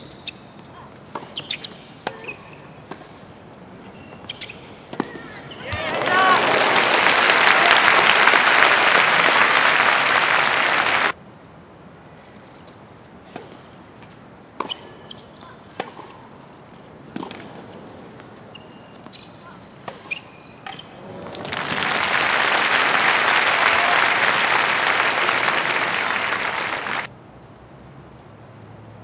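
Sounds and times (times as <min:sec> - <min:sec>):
tennis ball struck by rackets: 0:04.9 - 0:05.8, 0:17.1 - 0:17.6
crowd applauding: 0:05.6 - 0:11.2, 0:21.2 - 0:27.1.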